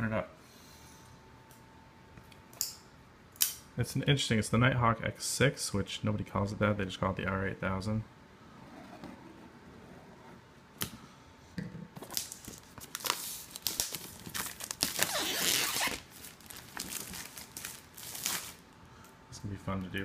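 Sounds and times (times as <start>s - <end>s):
plastic shrink-wrap tearing: 12.1s - 18.6s.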